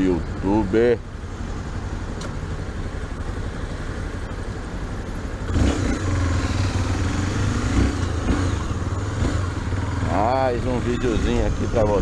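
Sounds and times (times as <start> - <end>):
motorcycle engine revving: 5.3 - 12.0.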